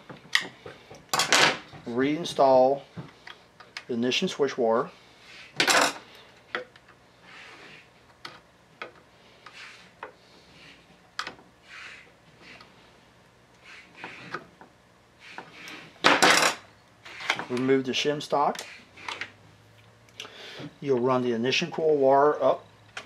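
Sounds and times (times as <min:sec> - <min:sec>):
short scrape: 0:11.6 - 0:12.6, 0:13.6 - 0:14.3.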